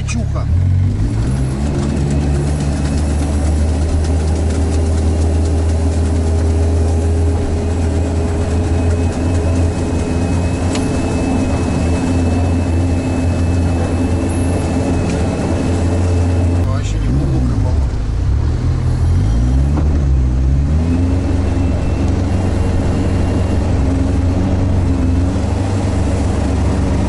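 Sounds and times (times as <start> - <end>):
diesel engine droning: 0.0 - 27.0
faint high whine: 7.5 - 17.0.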